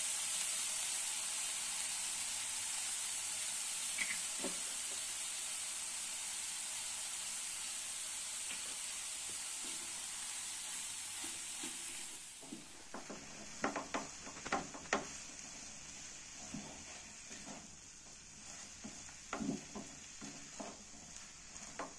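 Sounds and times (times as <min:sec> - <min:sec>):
food sizzling in a frying pan: 0:00.0 - 0:21.9
spatula scraping a pan: 0:11.1 - 0:21.9.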